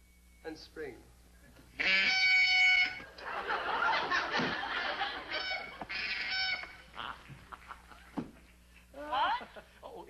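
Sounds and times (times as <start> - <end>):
high bird-like call: 1.8 - 3.0, 5.3 - 6.8
studio audience laughter: 3.1 - 6.0, 6.8 - 8.2.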